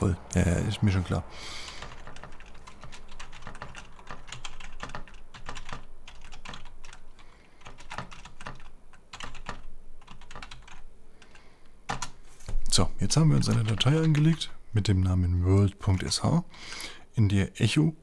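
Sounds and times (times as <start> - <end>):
typing on computer keyboard: 1.7 - 12.2, 13.4 - 14.5.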